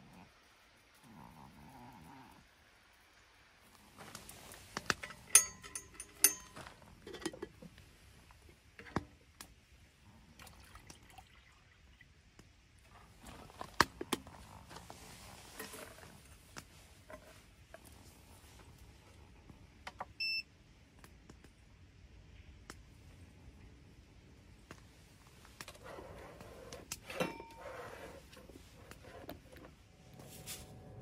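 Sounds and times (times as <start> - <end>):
small items clinking and knocking: 4.8 - 7.8.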